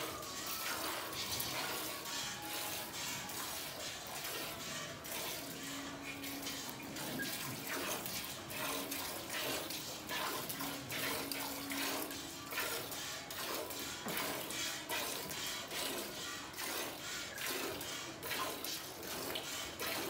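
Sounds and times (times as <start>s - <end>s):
milk squirting into metal pot: 0.0s - 20.0s.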